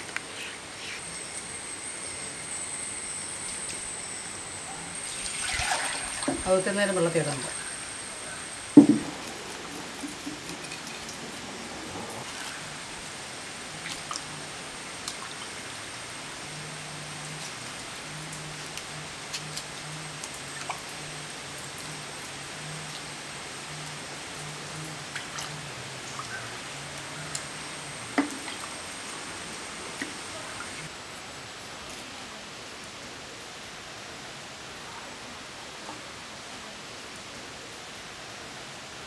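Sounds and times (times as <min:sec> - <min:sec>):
steady hiss: 0:00.0 - 0:39.0
water drips and splashes: 0:05.0 - 0:07.6, 0:13.7 - 0:15.9, 0:17.2 - 0:30.9.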